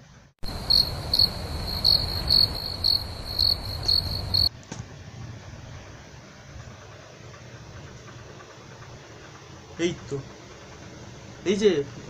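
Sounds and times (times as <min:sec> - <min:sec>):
faint hiss: 0:00.0 - 0:07.4
crickets chirping: 0:00.4 - 0:04.5.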